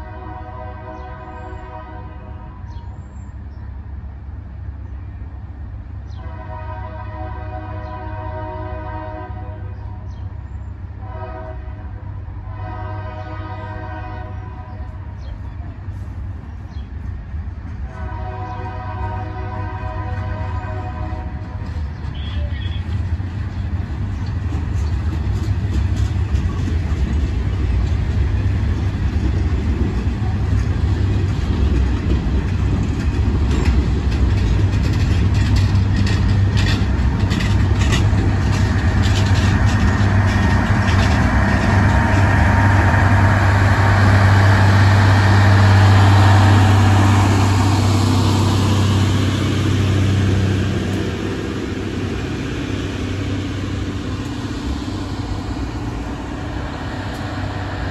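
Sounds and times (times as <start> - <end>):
train engine drone: 0.0 - 57.9
wheels clicking over rail joints: 21.1 - 57.9.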